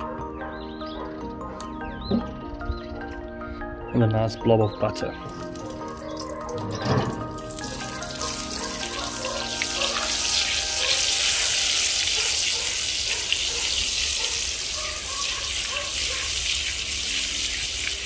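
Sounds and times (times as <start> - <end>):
butter sizzling in hot oil: 7.2 - 18.0.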